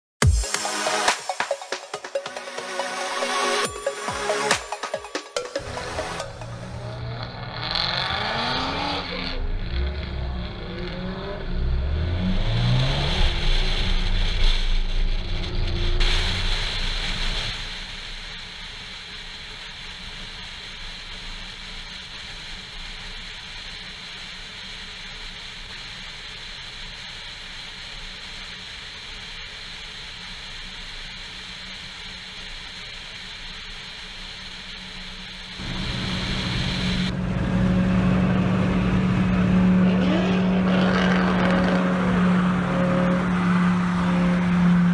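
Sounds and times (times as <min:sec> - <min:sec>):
car engines accelerating: 0:05.6 - 0:16.0, 0:35.6 - 0:44.9
wind and road noise: 0:35.6 - 0:44.9.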